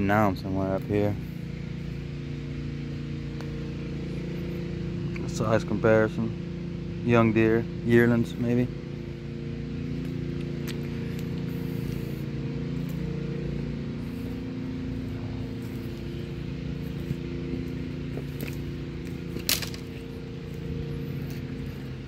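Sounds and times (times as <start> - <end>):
pump humming: 0.0 - 22.0
footsteps on dirt trail: 9.9 - 22.0
stick snapping: 19.3 - 19.9.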